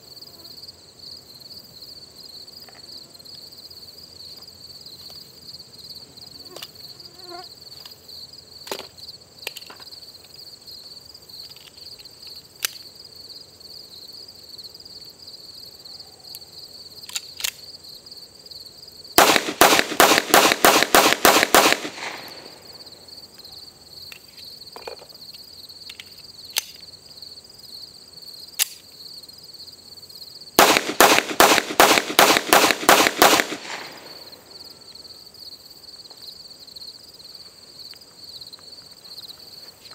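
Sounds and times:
high insect trill: 0.0 - 39.9
rapid pistol shots: 19.2 - 22.6, 30.6 - 34.3.

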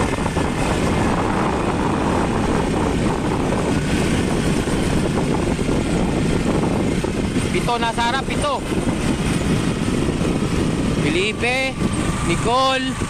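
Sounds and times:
vehicle engine running: 0.0 - 13.0
wind buffeting microphone: 0.0 - 13.0.

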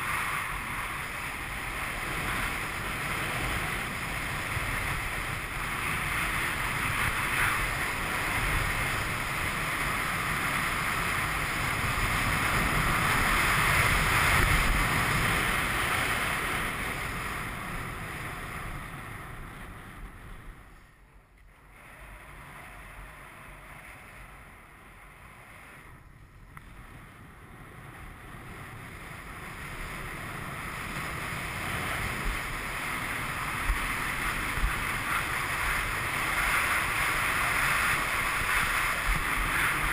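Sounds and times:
wind rushing on microphone: 0.0 - 39.9
skis carving on hard snow: 28.8 - 39.9.

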